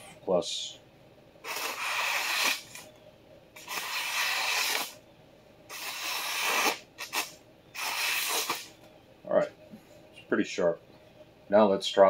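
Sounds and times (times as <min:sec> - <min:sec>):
knife slicing through newspaper: 0:01.5 - 0:02.8, 0:05.7 - 0:08.7.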